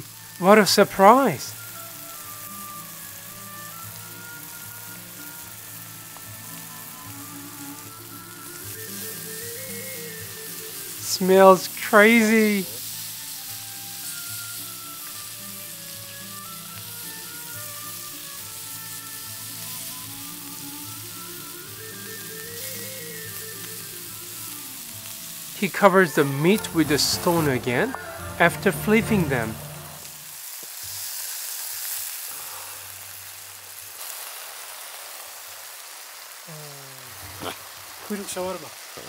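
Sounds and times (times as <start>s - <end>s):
background music with held notes: 0.0s - 30.4s
meat fat sizzling on hot stone: 0.0s - 39.0s.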